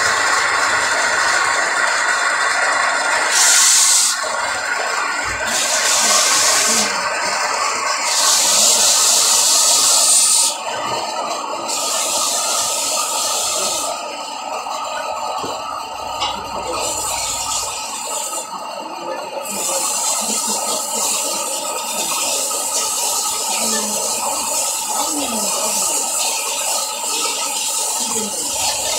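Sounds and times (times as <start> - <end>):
belt sander grinding: 0.0 - 28.9
rasping hiss of sanding belt: 8.0 - 10.6.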